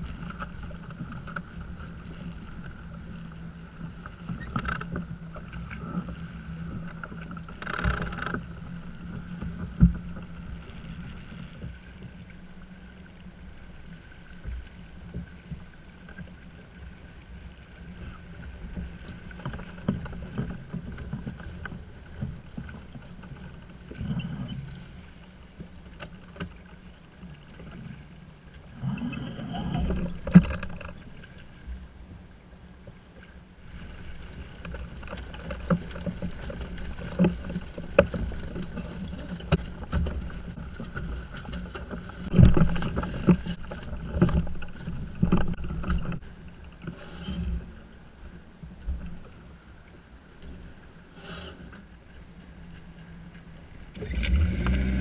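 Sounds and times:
water and wind along hull: 0.0s - 55.0s
knocks and rattles of lines: 29.8s - 31.0s, 34.6s - 46.2s.

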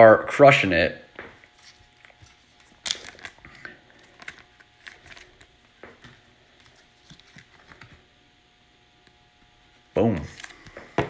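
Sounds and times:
card sliding into plastic sleeve: 1.6s - 8.0s.

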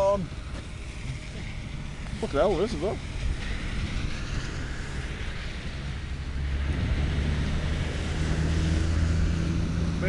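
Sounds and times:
low engine hum: 0.0s - 10.0s
wind on microphone: 0.0s - 10.0s.

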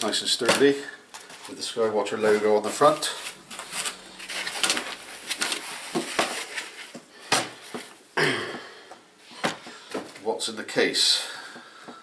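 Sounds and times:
foam packing rubbing and scraping: 1.5s - 7.0s.

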